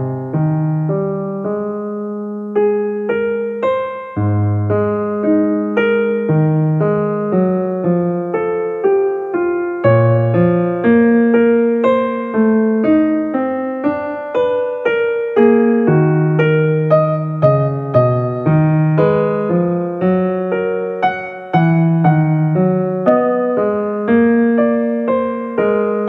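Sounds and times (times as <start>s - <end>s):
gentle piano music: 0.0s - 26.0s.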